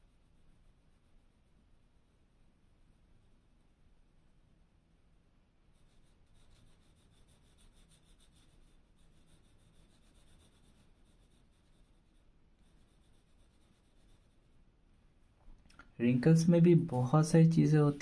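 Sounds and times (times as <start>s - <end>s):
pencil scratching on paper: 0.0s - 2.2s, 5.7s - 14.6s.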